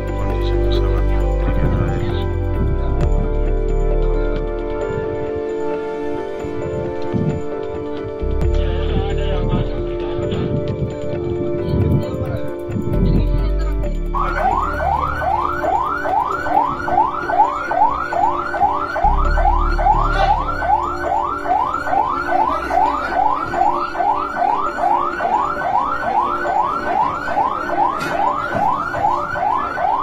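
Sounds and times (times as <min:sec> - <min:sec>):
ambulance siren yelping: 0:13.8 - 0:30.0.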